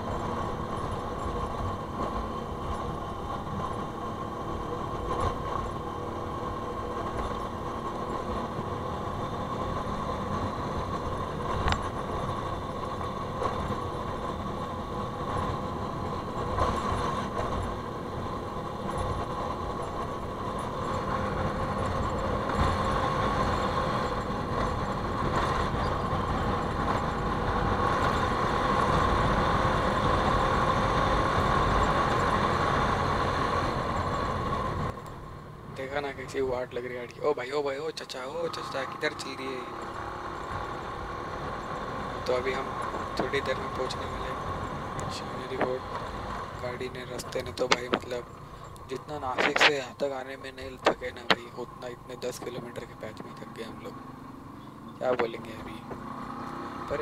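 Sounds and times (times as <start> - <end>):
motorcycle engine rumbling: 38.2 - 57.0.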